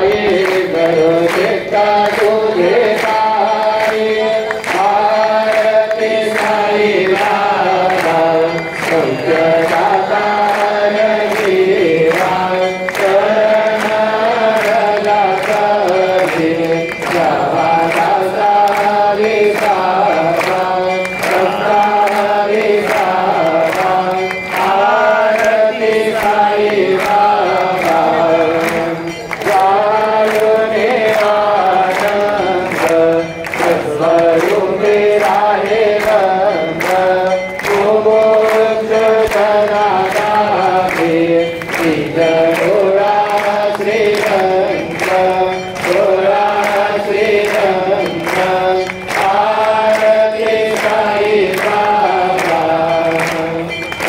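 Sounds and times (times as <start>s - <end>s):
group chanting: 0.0s - 53.7s.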